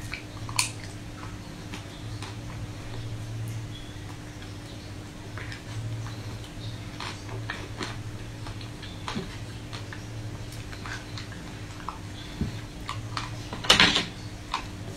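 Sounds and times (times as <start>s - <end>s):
wet mouth eating sounds: 0.0s - 13.5s
steady low hum: 0.0s - 14.9s.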